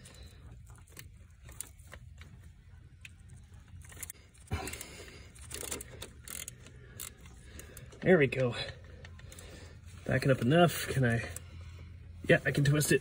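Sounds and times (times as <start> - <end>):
low steady hum: 0.0 - 13.0
socket wrench clicks and rattles: 5.4 - 7.9.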